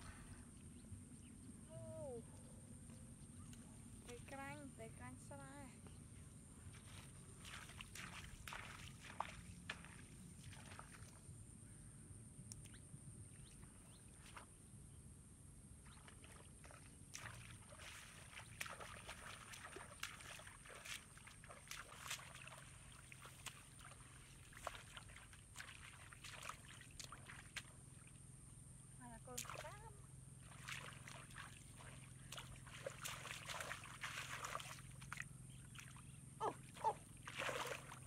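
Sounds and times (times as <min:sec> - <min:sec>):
feet wading in muddy water: 0:05.9 - 0:11.4, 0:13.4 - 0:14.6, 0:15.8 - 0:38.0
hands splashing through water: 0:16.2 - 0:27.7, 0:30.4 - 0:36.0, 0:36.7 - 0:38.0.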